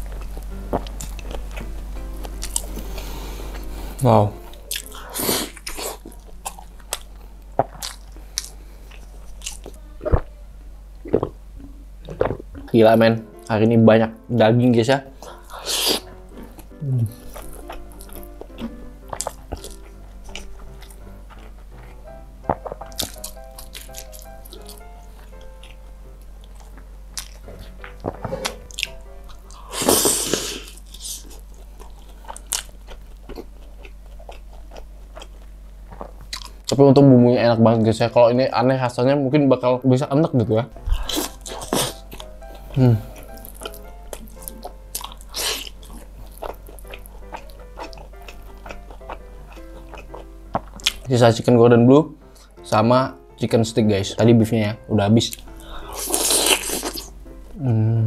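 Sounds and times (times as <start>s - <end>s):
wet crunchy chewing: 0.0s - 3.7s, 4.5s - 10.3s, 11.0s - 11.4s, 12.0s - 12.8s, 15.2s - 36.8s, 40.8s - 51.5s, 55.3s - 57.2s
person biting into fried chicken: 29.5s - 31.4s, 44.4s - 45.8s, 55.9s - 57.1s.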